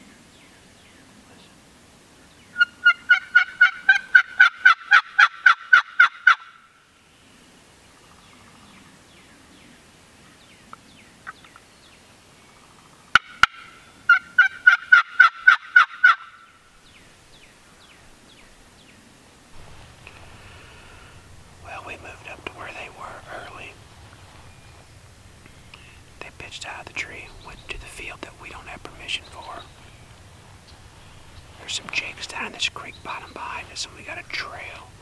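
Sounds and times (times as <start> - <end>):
turkey yelping: 2.6 - 6.6, 13.1 - 16.5.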